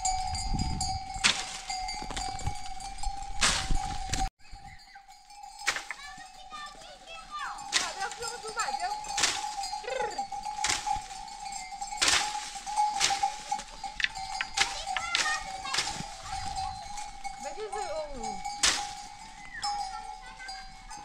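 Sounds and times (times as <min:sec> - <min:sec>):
leaves rustling: 0:00.0 - 0:04.6, 0:05.3 - 0:21.0
stick knocking tree branches: 0:01.2 - 0:02.4, 0:03.4 - 0:04.3, 0:05.6 - 0:06.2, 0:07.7 - 0:09.8, 0:10.5 - 0:17.2, 0:18.6 - 0:19.2
sheep and goats bleating: 0:06.2 - 0:21.0.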